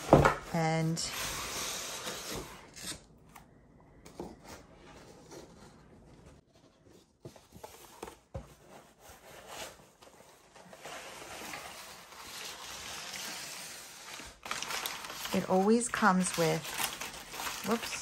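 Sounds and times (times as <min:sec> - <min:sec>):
packing paper rustling and crinkling: 0:07.4 - 0:18.0.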